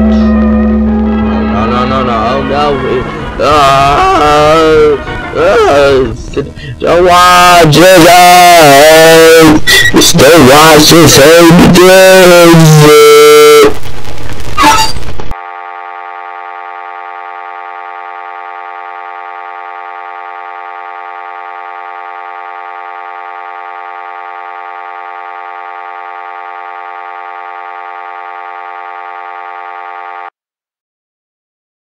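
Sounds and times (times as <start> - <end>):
steady electronic drone: 0.0 - 30.3.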